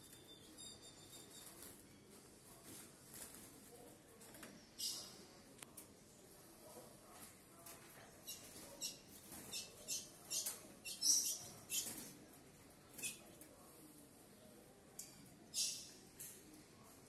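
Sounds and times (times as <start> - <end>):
bird chirping: 8.2 - 12.0.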